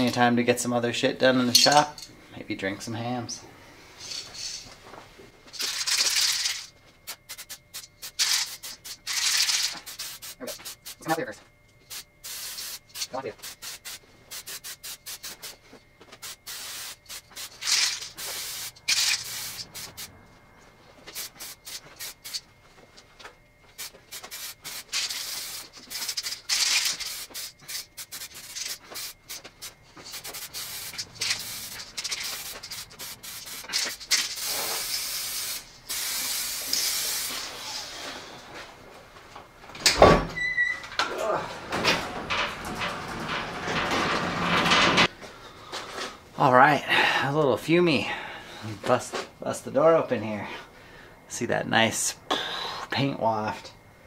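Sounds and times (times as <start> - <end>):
spray can rattling when shaken: 5.5 - 11.1, 11.9 - 15.6, 16.2 - 20.1, 21.1 - 22.4, 23.7 - 37.5
spray can hissing: 5.6 - 11.1, 11.9 - 15.6, 16.2 - 20.1, 21.1 - 22.4, 23.7 - 38.0.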